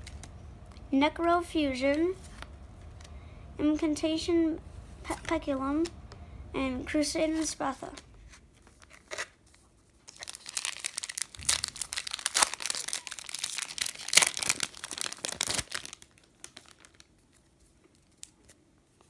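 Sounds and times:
foil wrapper crinkling and tearing: 0:10.0 - 0:18.6.

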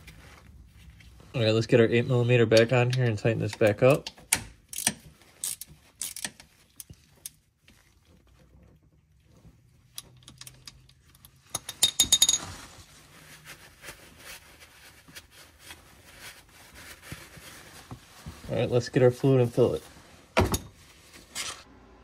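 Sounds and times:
ratchet wrench clicking: 0:04.7 - 0:06.4.

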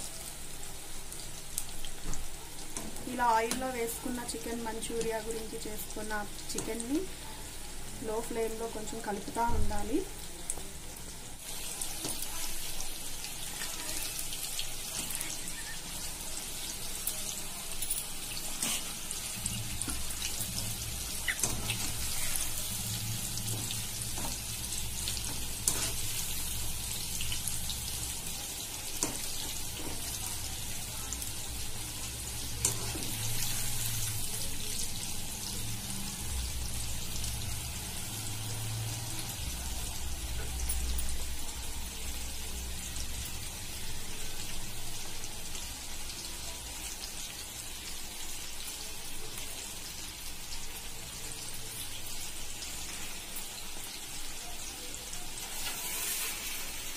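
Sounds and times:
chicken sizzling in hot oil: 0:00.0 - 0:56.9.

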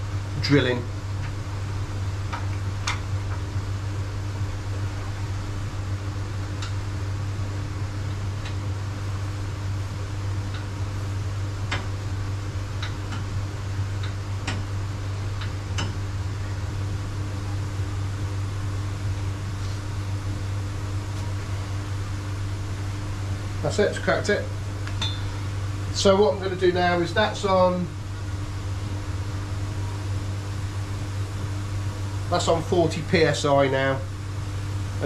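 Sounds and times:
low machine hum: 0:00.0 - 0:35.0.

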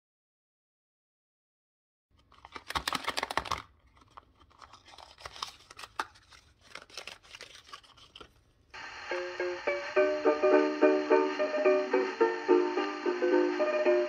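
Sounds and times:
cardboard packaging rustling: 0:02.2 - 0:08.7.

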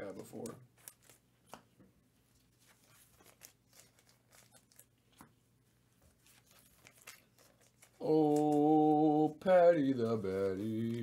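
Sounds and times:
trading cards rustling and clicking: 0:00.0 - 0:05.3, 0:06.1 - 0:09.1
low steady hum: 0:00.0 - 0:11.0.

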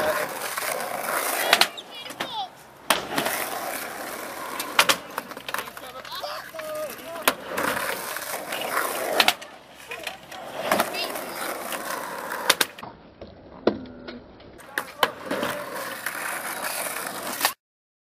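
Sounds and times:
skateboard clacking on tricks: 0:00.0 - 0:12.8, 0:14.6 - 0:17.6
skateboard wheels rolling on tarmac: 0:00.0 - 0:17.6.

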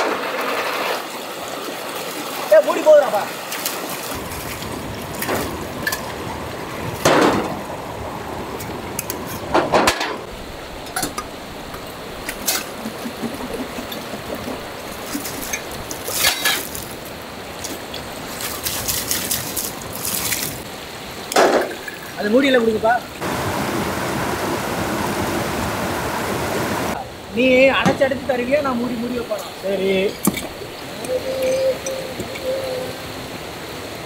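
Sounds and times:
stream rushing: 0:00.0 - 0:34.0
water splashing from glass jars: 0:14.6 - 0:20.6.

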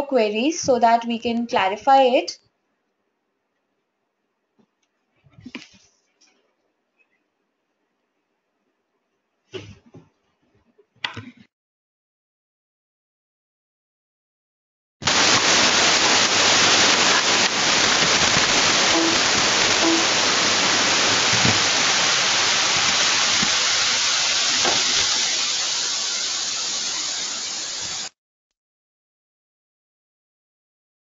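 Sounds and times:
loud static hiss: 0:15.0 - 0:28.1.

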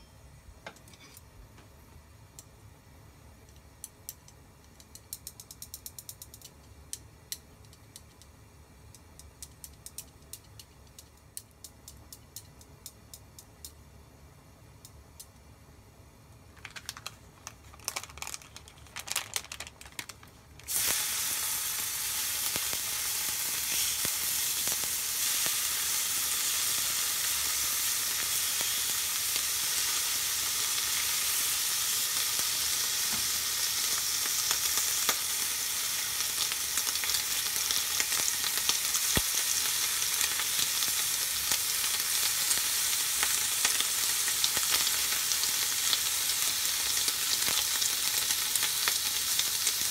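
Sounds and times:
bacon sizzling in frying pan: 0:20.0 - 0:49.9.

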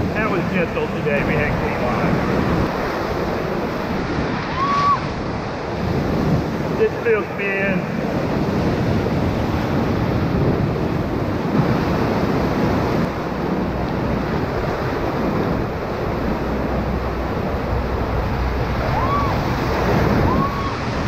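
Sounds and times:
whitewater rushing: 0:00.0 - 0:21.0.

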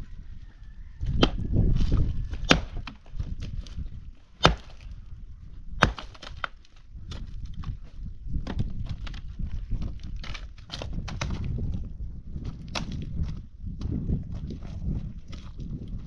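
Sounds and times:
wood and gravel crunching: 0:00.0 - 0:16.0
axe striking wood: 0:01.1 - 0:01.5, 0:02.3 - 0:03.4, 0:04.4 - 0:04.8, 0:05.8 - 0:07.3.

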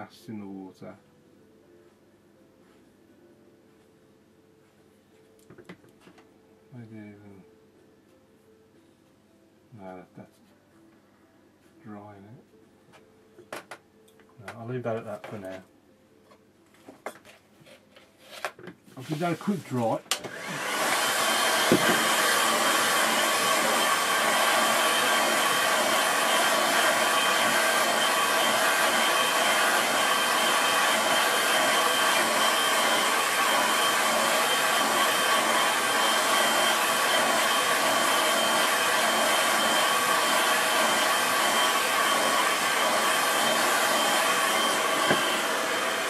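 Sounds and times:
hair dryer blowing air: 0:19.0 - 0:46.0.

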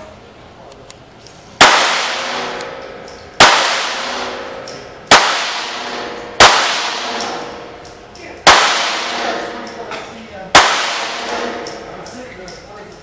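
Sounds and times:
pistol shots with ringing echo: 0:01.6 - 0:09.8, 0:10.5 - 0:12.0.

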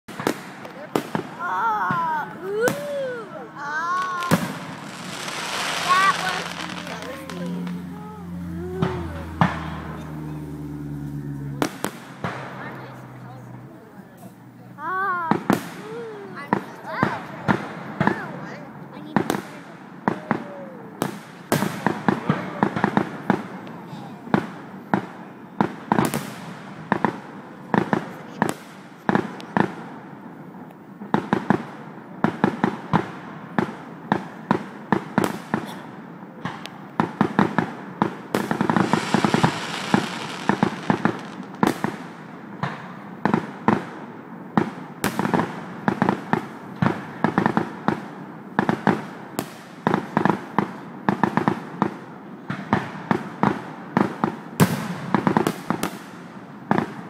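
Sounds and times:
fireworks bangs: 0:00.1 - 0:14.3, 0:14.9 - 0:57.0
fireworks hissing: 0:02.2 - 0:10.6, 0:38.4 - 0:42.1.

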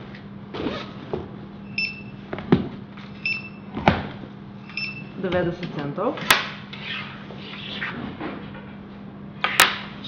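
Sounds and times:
steady low hum: 0:00.0 - 0:10.0
scanner beeping: 0:01.6 - 0:02.2, 0:03.2 - 0:03.7, 0:04.6 - 0:05.3.

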